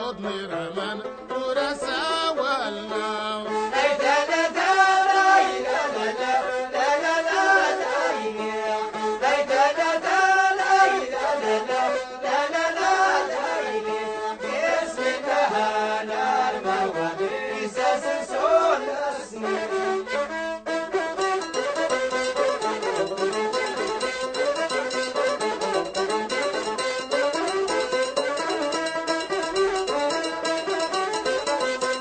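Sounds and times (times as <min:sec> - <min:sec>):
sliding ornamented melody: 0:19.1 - 0:32.0.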